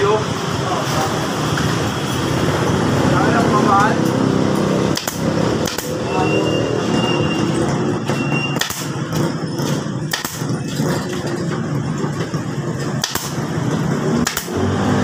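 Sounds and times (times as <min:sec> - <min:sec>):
pneumatic staple gun firing: 0:04.9 - 0:06.0, 0:08.5 - 0:09.0, 0:10.1 - 0:10.5, 0:13.0 - 0:13.5, 0:14.2 - 0:15.0.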